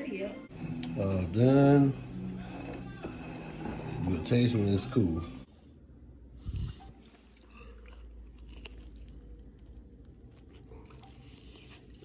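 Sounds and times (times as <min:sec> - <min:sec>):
person chewing: 0:06.4 - 0:12.0.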